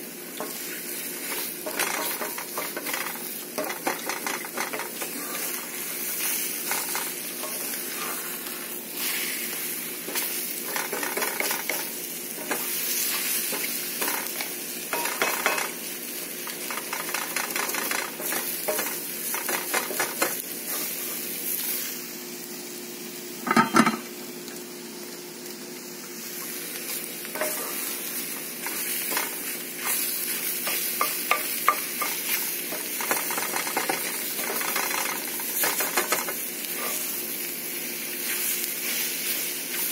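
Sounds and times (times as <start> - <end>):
eggs sizzling in a pan: 0.0 - 39.9
wooden spatula scraping a pan: 0.4 - 8.3, 10.1 - 15.7.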